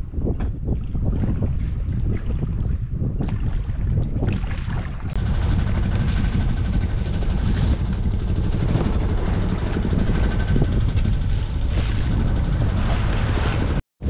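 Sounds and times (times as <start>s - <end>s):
boat engine rumble: 0.0s - 13.8s
wind buffeting microphone: 0.0s - 13.8s.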